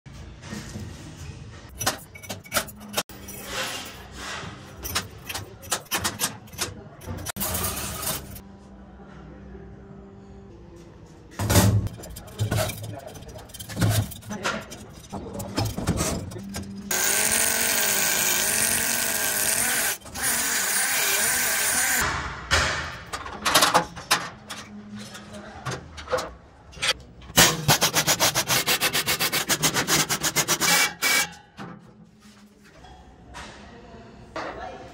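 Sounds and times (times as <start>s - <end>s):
electric drill motor: 16.9s - 22.0s.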